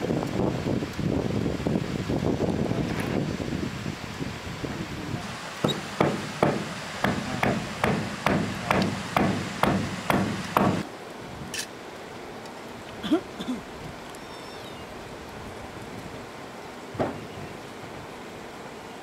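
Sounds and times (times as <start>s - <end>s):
hand tool striking wood: 5.6s - 10.8s.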